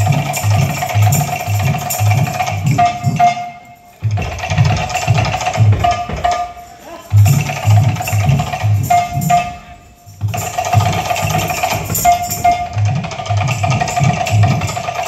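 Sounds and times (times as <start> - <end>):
bright metallic strikes: 0.0 - 15.0
drums beating: 0.0 - 15.0.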